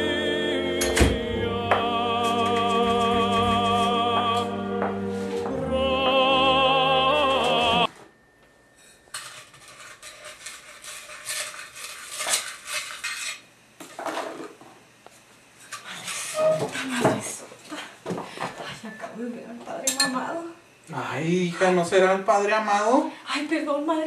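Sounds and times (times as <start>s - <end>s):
operatic singing voice: 0.0s - 7.9s
spoon scraping a bowl: 8.8s - 13.5s.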